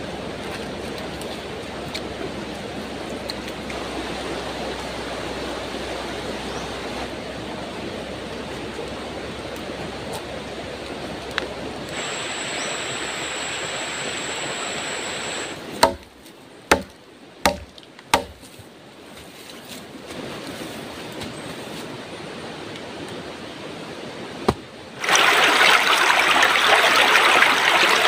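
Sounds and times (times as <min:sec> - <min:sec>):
river water rushing: 0:00.0 - 0:16.1, 0:21.8 - 0:28.0
high steady whine: 0:11.8 - 0:16.0
machete chopping wood: 0:15.7 - 0:18.5, 0:24.4 - 0:24.7.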